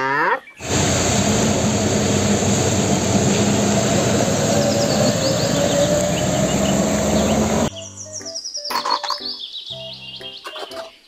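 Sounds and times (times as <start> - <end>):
faint rising whine: 0.6 - 7.7
truck engine running: 0.6 - 7.7
tyres hissing on wet road: 0.6 - 7.7.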